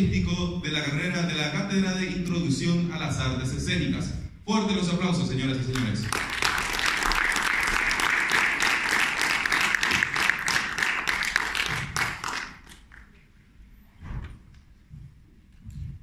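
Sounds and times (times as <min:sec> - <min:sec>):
audience applauding: 0:05.7 - 0:13.2.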